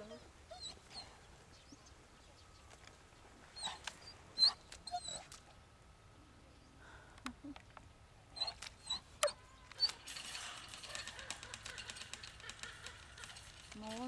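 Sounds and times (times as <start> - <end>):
dog whining yelps: 0.5 - 1.1, 3.6 - 5.4, 8.4 - 13.5.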